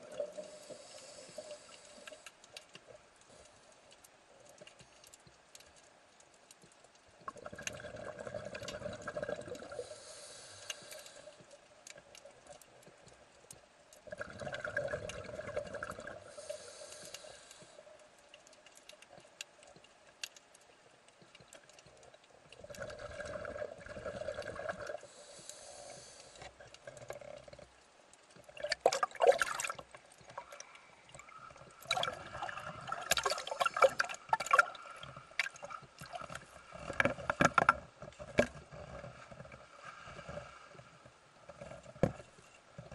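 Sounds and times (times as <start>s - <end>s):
rough crackling and splashing: 0.0s - 42.9s
regulator hiss: 0.4s - 2.3s, 9.8s - 11.4s, 16.2s - 17.9s, 25.0s - 26.5s
diver exhaling bubbles underwater: 7.3s - 9.8s, 14.1s - 16.4s, 22.6s - 25.1s, 28.6s - 29.8s, 31.2s - 36.9s.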